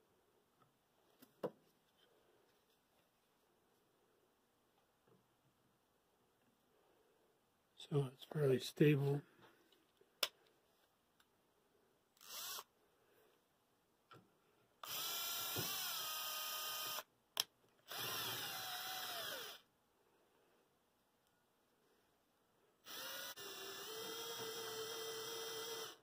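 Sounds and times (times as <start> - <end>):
cordless drill drilling wood: 12.2 - 12.7, 14.8 - 17.1, 17.9 - 19.7, 22.8 - 26.0.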